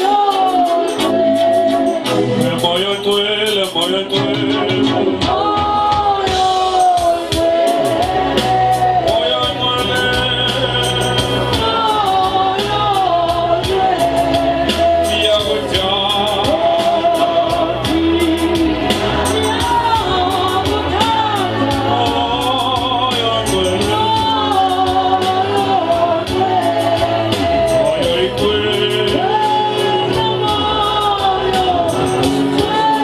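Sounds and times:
bass line: 0.0s - 33.0s
congregation singing worship song: 0.0s - 33.0s
percussion beat: 0.0s - 33.0s.

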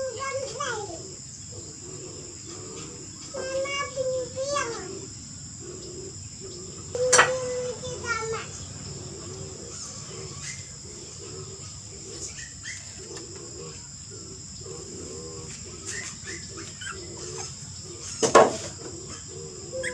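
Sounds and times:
insects chirring: 0.0s - 19.9s
bird chirps: 1.4s - 13.3s, 15.8s - 18.3s.

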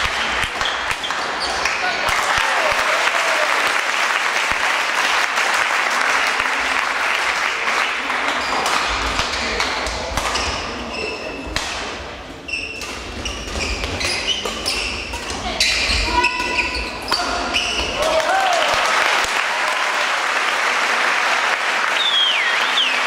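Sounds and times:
crowd applause: 0.0s - 8.9s, 18.0s - 23.0s
shoes squeaking on court floor: 0.6s - 1.8s, 10.3s - 11.6s, 12.4s - 18.0s.

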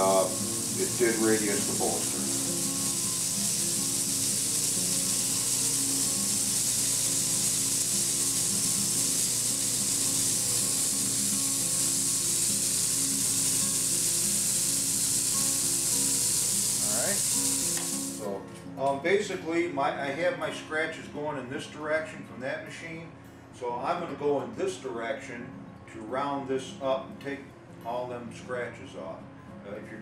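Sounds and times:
motor humming: 0.0s - 18.2s
belt sander hissing: 0.0s - 18.3s.

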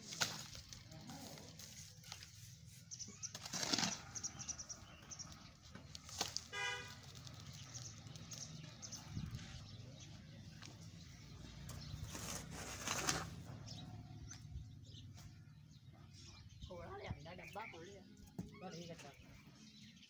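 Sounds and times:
hoe scraping wet cement: 0.0s - 8.7s, 11.9s - 13.5s
horn toot: 6.5s - 7.0s.

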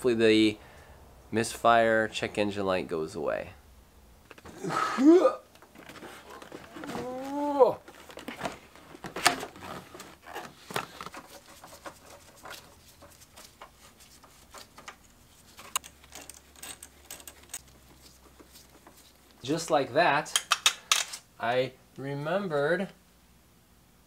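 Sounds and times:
hand tools clicking and rattling: 10.8s - 19.0s, 20.3s - 21.2s.

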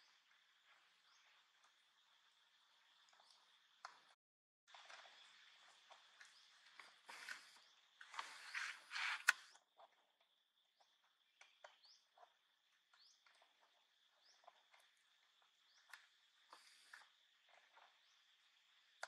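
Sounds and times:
bird chirps: 10.7s - 19.0s.

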